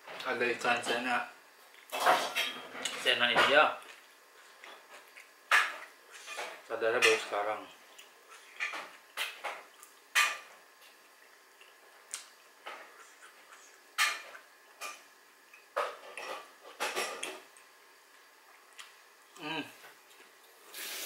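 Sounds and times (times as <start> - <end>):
clicks and smacks of eating: 3.8 - 6.3, 7.8 - 19.4.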